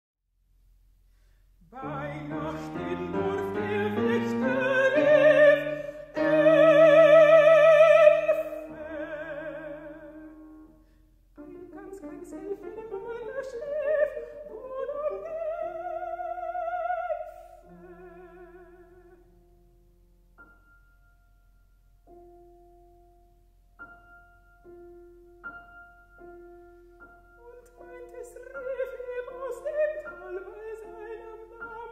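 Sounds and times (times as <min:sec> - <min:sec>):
operatic soprano singing: 0:01.6 - 0:10.6, 0:11.4 - 0:19.3, 0:27.4 - 0:31.9
grand piano: 0:01.6 - 0:31.9.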